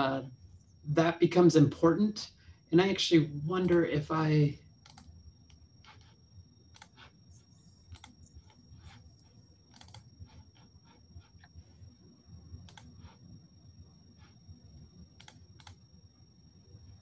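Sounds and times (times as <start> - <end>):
keyboard and mouse clicking: 4.8 - 7.2, 7.9 - 9.0, 9.7 - 11.4, 12.6 - 13.2, 15.2 - 15.8.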